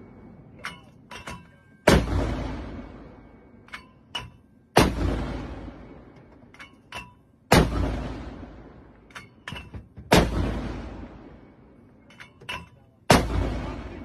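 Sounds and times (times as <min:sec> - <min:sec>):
mortar firing blast with echo: 0:01.9 - 0:03.2, 0:04.8 - 0:06.1, 0:07.5 - 0:09.0, 0:10.1 - 0:11.5, 0:13.1 - 0:14.0.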